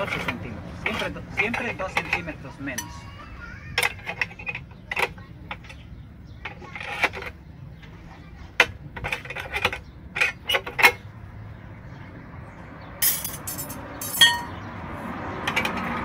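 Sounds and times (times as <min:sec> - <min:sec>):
metal rattle with ringing clank: 0:00.0 - 0:03.2, 0:13.0 - 0:14.7.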